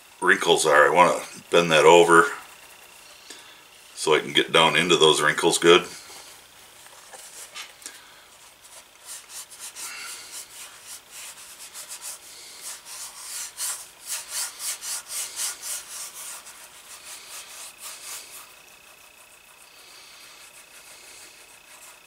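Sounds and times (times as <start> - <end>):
fingertips rubbing leather: 8.5 - 22.0.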